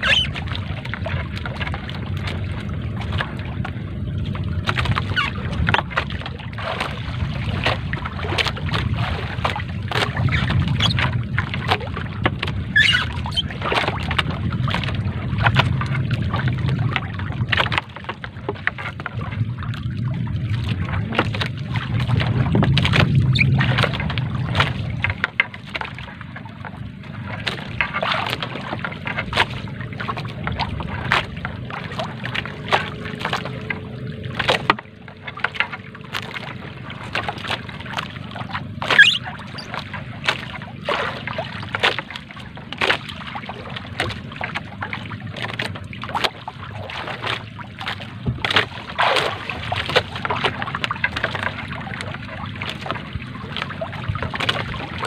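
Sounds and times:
low rumble: 0.0s - 28.0s
water dripping and sloshing: 0.0s - 55.0s.

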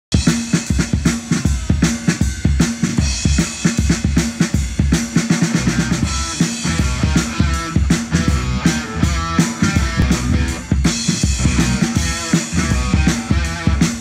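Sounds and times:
drum kit beat: 0.1s - 14.0s
live rock band playing: 0.1s - 14.0s
low bass notes: 5.6s - 14.0s.

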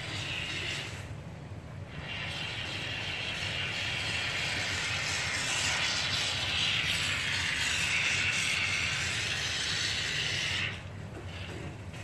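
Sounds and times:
spray foam can hissing: 1.9s - 11.5s.

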